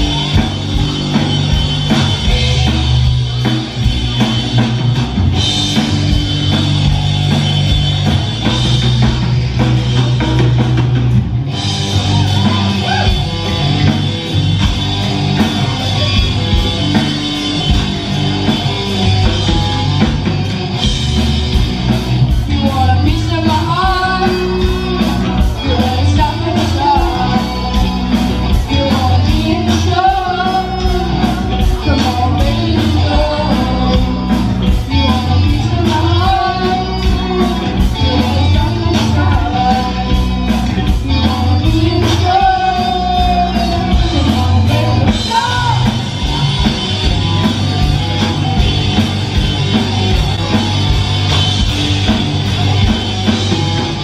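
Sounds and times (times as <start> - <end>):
rock band playing: 0.0 - 54.0
person singing lead vocal: 1.9 - 3.6, 12.0 - 13.4, 22.3 - 46.8.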